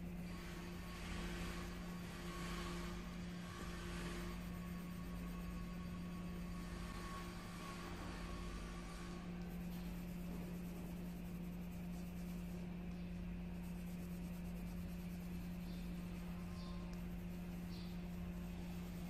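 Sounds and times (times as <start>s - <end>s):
steady low hum: 0.0s - 19.0s
colouring tool scratching paper: 0.2s - 19.0s.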